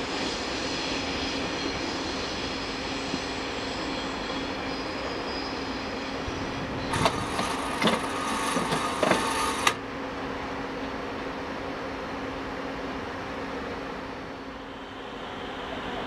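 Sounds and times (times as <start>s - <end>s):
train humming: 0.0s - 16.0s
high wheel squeal: 0.3s - 9.7s.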